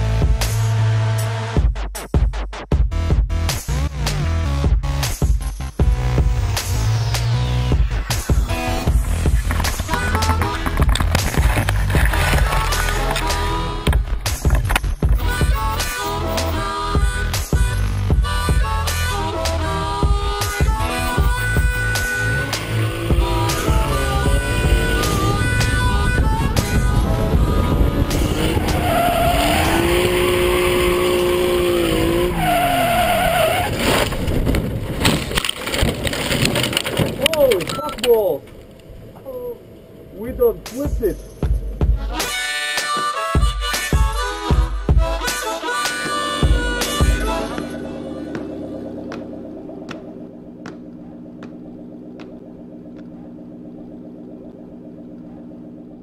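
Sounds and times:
road and wind noise: 0:02.9 - 0:56.0
car engine running under power: 0:05.7 - 0:32.8, 0:45.7 - 0:56.0.

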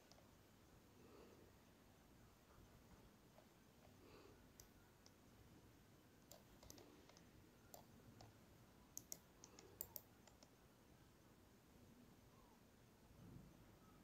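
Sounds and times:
computer mouse clicks: 0:00.0 - 0:00.3, 0:03.3 - 0:05.2, 0:06.2 - 0:10.6.

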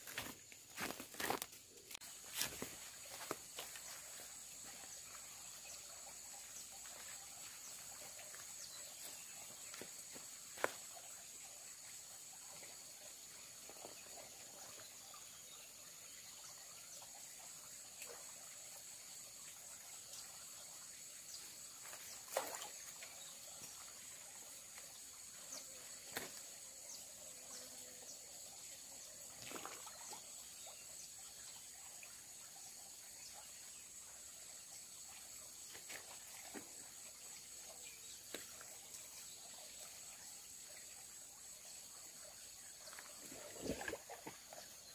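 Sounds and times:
stream trickling: 0:00.0 - 0:44.9
rocks knocking and splashing: 0:43.2 - 0:44.6.

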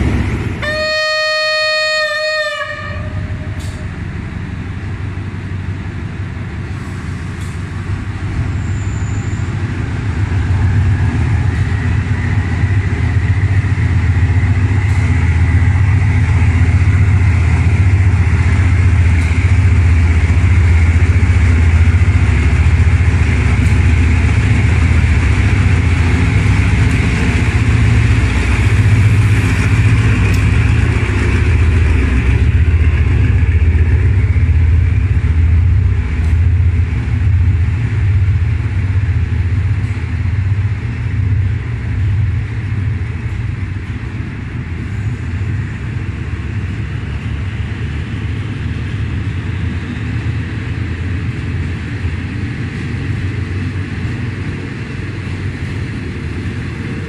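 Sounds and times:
locomotive engine rumbling: 0:00.0 - 0:57.0
train horn blast: 0:00.6 - 0:03.9.

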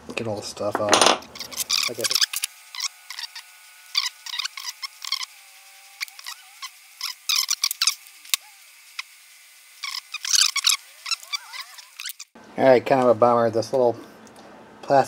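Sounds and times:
short squeaks: 0:01.3 - 0:05.4, 0:06.0 - 0:08.5, 0:09.8 - 0:12.4.

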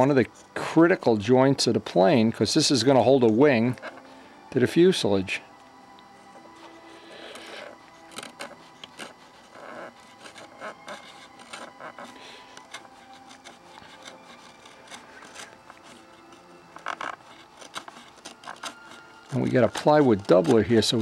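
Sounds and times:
knife scratching on wood: 0:03.7 - 0:04.1, 0:06.2 - 0:21.0.

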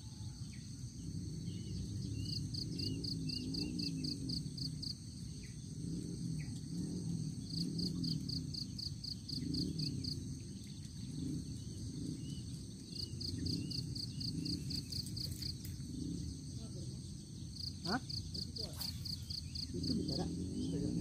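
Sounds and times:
high insect drone: 0:00.0 - 0:21.0
insects chirping in pulses: 0:00.0 - 0:21.0
wavering low hum: 0:01.0 - 0:21.0.

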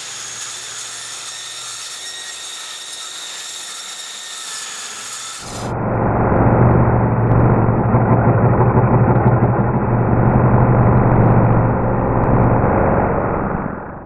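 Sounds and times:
jigsaw cutting plywood: 0:00.0 - 0:05.7.

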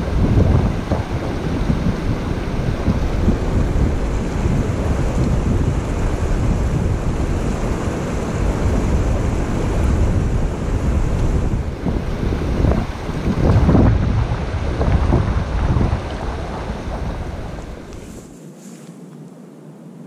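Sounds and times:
river water rushing over boulders: 0:00.0 - 0:18.0.

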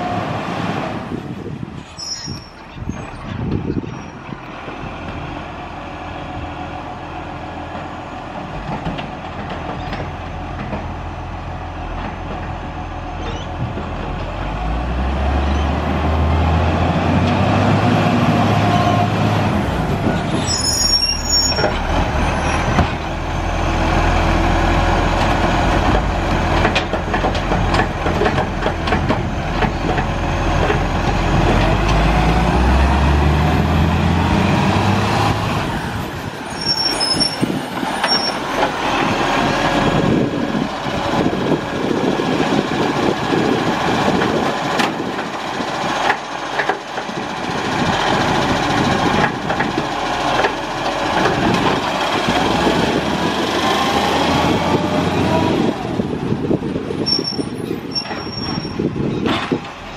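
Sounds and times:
garbage truck engine revving: 0:14.3 - 0:21.0, 0:21.6 - 0:36.4, 0:47.4 - 0:57.0.

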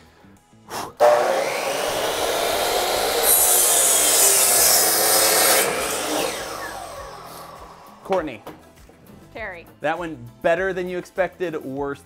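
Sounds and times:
saw blade cutting wood: 0:00.7 - 0:08.6
miter saw running: 0:01.0 - 0:08.4.

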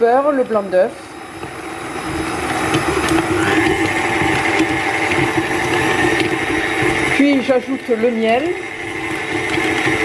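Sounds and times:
mixer whine: 0:00.0 - 0:10.0
stand mixer motor hum: 0:00.0 - 0:10.0.

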